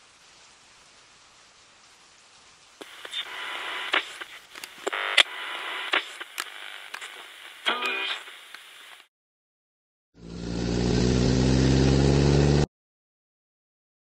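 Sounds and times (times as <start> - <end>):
faint hiss: 0.0 - 9.1
sharp radio clicks: 2.8 - 9.1
walkie-talkie radio transmission: 2.8 - 9.1.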